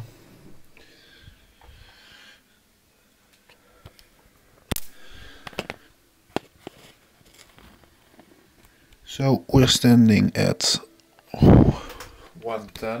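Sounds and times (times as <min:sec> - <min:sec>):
phone being handled: 0:05.4 - 0:08.3.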